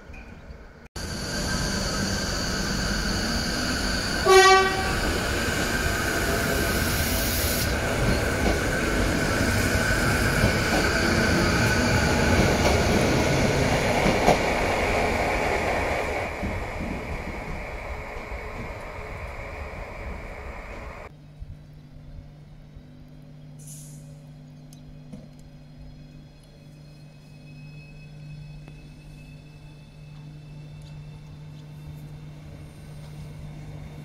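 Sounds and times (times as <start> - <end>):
electric train running with motor whine: 1.0 - 34.0
train horn blast: 4.2 - 5.2.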